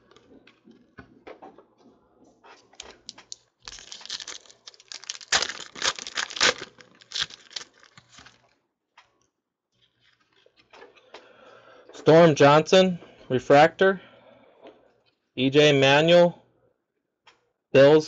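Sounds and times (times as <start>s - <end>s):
foil wrapper crinkling and tearing: 2.7s - 8.6s.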